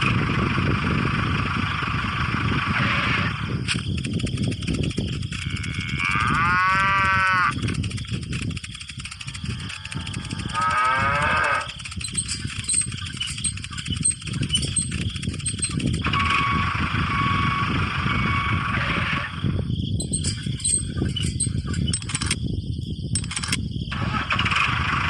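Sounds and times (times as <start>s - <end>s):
cow mooing: 5.4s - 7.6s, 9.6s - 11.8s.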